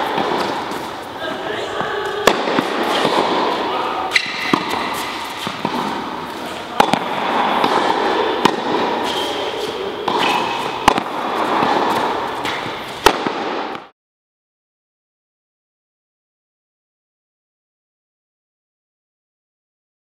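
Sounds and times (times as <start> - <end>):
tennis ball hit by rackets: 0.0 - 0.9, 1.8 - 13.9
steady background noise: 0.0 - 13.9.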